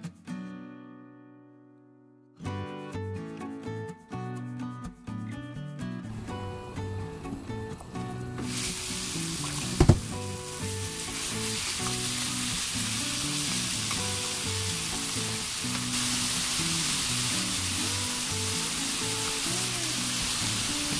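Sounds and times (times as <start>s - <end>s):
beef sizzling in oil: 8.4s - 20.9s
sharp knock: 9.8s - 10.2s.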